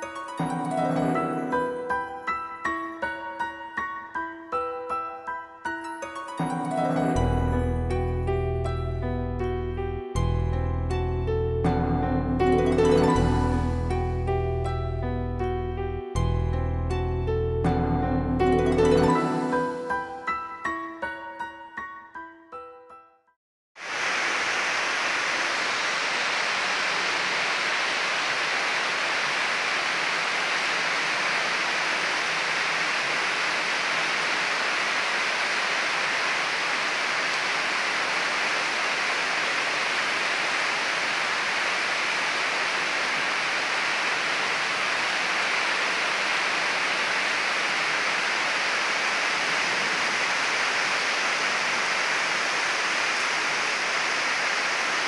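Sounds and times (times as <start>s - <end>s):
heavy rain pouring: 0.0s - 1.9s, 11.7s - 14.2s, 17.7s - 20.2s, 23.8s - 55.0s.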